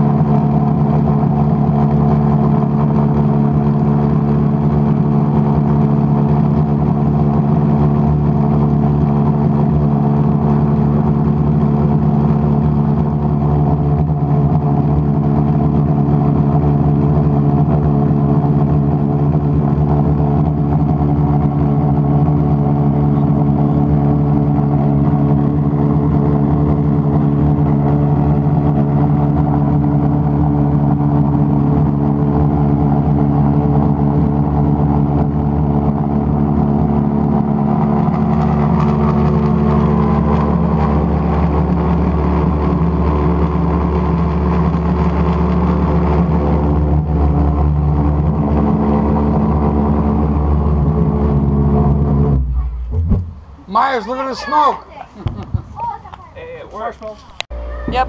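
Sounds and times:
pulsejet engine droning: 0:00.0 - 0:54.6.

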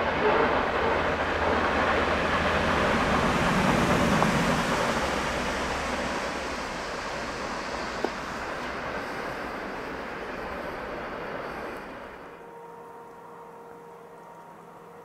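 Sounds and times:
freight train wheel rumble: 0:00.0 - 0:15.0
steady hiss: 0:04.1 - 0:12.4.

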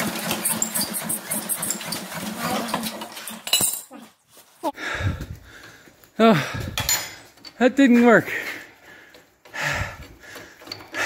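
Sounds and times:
diesel engine hand cranking: 0:00.0 - 0:03.6, 0:09.0 - 0:11.0.

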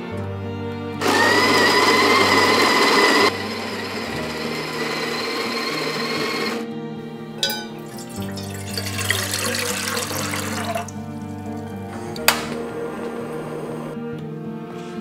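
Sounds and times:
soft background music: 0:00.0 - 0:15.0
coffee grinder grinding beans: 0:01.0 - 0:06.6.

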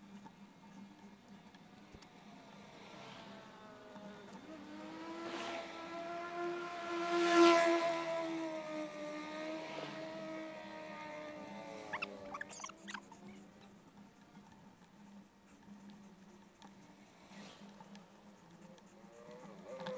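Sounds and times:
car driving past: 0:02.2 - 0:12.3.

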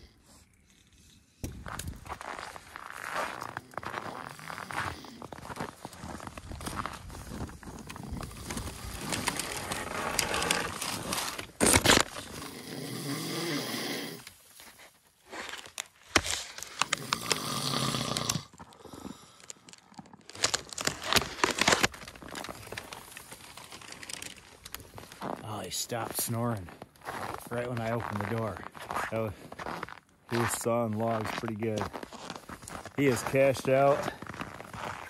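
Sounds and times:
man snoring: 0:12.4 - 0:14.2, 0:17.0 - 0:18.5
plastic sheeting crinkling: 0:20.2 - 0:25.4.

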